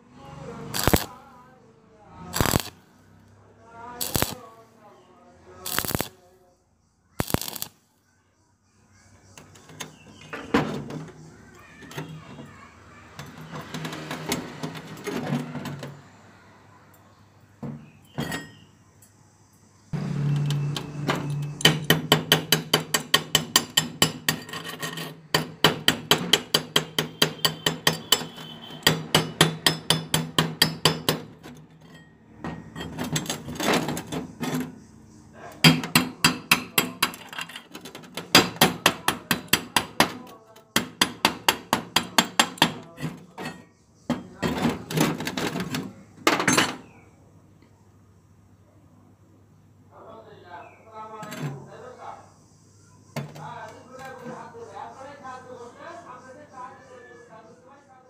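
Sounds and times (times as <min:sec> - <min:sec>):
metal ringing: 0:17.8 - 0:18.7.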